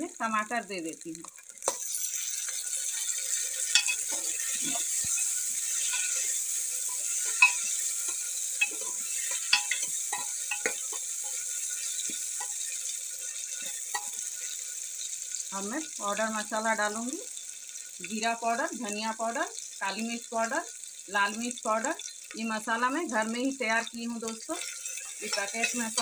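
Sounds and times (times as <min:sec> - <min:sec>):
vegetables sizzling in oil: 0:00.0 - 0:26.0.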